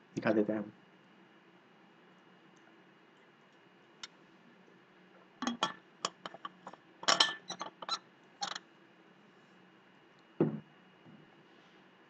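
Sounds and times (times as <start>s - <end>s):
metal water bottle clinks: 5.4s - 8.6s.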